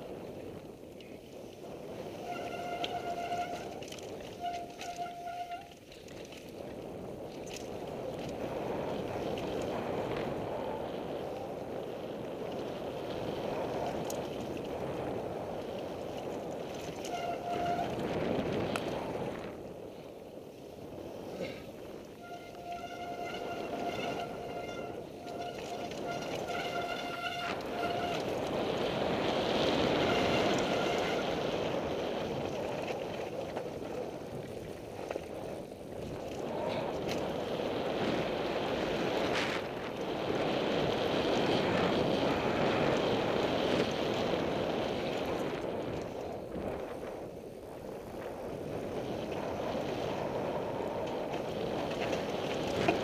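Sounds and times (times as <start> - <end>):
wind rushing over microphone: 0.0 - 53.0
steady buzzing tone: 22.1 - 31.5.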